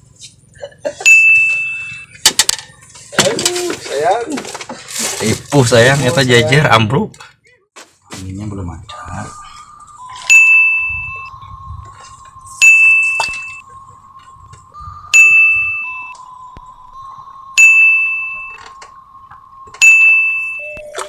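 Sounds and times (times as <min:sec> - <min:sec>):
steady high tone: 0:01.0 - 0:02.9, 0:08.8 - 0:21.0
bell-like ding: 0:01.1 - 0:02.1, 0:10.2 - 0:11.3, 0:12.6 - 0:13.6, 0:15.2 - 0:16.2, 0:17.6 - 0:18.7, 0:19.7 - 0:21.0.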